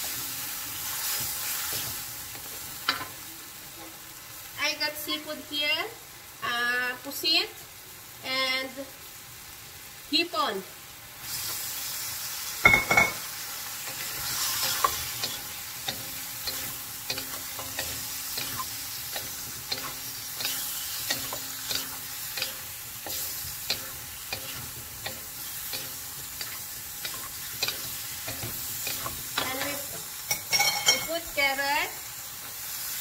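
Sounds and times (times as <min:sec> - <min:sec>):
food sizzling in a wok: 0:00.0 - 0:33.0
spatulas scraping a wok: 0:13.8 - 0:31.2.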